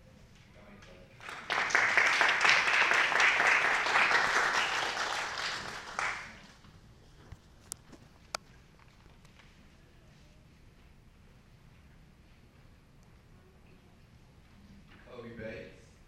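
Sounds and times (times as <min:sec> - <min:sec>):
audience applauding: 0:01.2 - 0:06.6.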